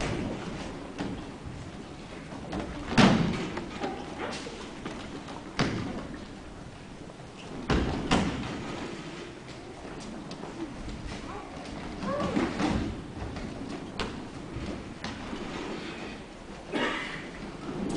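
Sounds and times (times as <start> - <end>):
bodies thudding on mats: 7.5 - 9.0.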